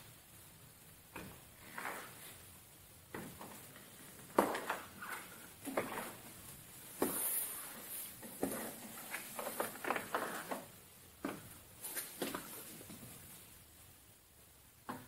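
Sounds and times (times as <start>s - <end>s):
footsteps: 3.1s - 13.5s.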